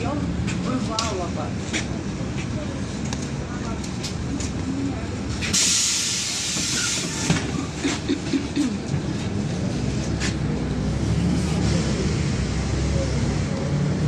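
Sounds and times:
bus engine rumble: 0.0s - 14.0s
compressed air hiss: 5.4s - 7.4s.

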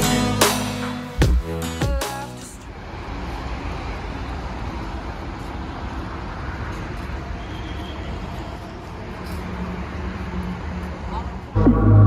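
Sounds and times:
road traffic rumble: 2.4s - 12.0s.

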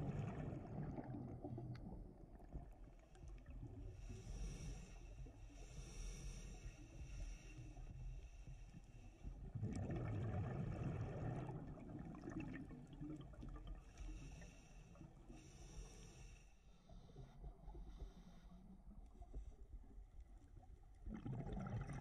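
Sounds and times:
exhaled bubbles underwater: 0.0s - 4.6s, 9.3s - 14.4s, 20.5s - 22.0s
scuba regulator inhale hiss: 4.0s - 9.3s, 14.0s - 18.6s.

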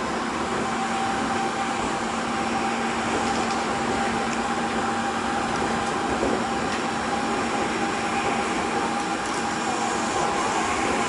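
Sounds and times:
inverter drive whine: 0.0s - 11.0s
train tyre and body rumble: 0.0s - 11.0s.

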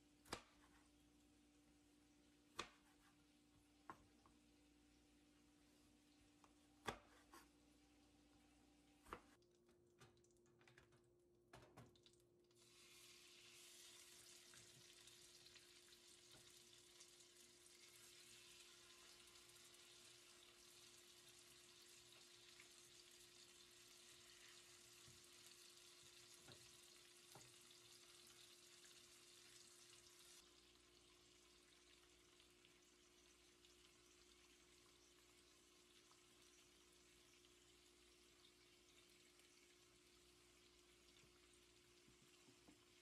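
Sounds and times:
food sizzling in frying pan: 12.6s - 38.3s.

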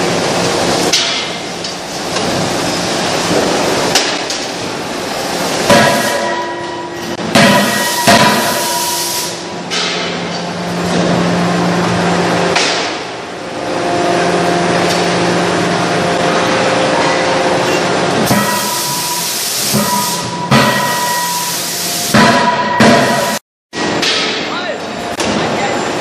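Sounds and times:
machine hum with held tones: 4.8s - 22.0s
heavy metallic impacts: 5.5s - 21.5s, 22.1s - 24.5s.

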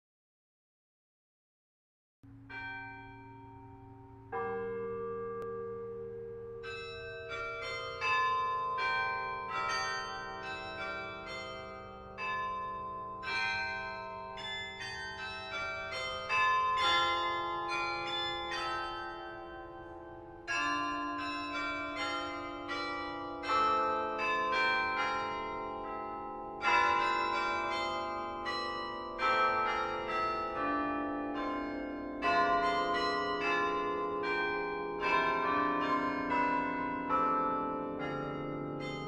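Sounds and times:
church bells ringing: 2.4s - 39.0s.

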